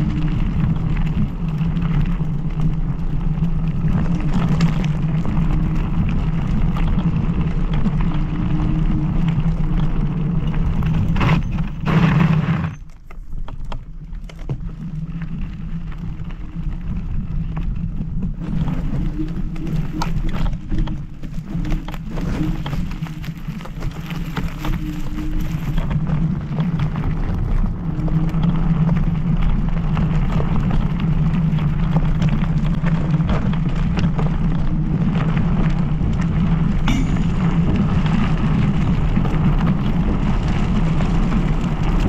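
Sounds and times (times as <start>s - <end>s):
road rumble: 0.0s - 42.0s
scooter rattling over bumps: 0.0s - 42.0s
wind noise: 0.0s - 42.0s.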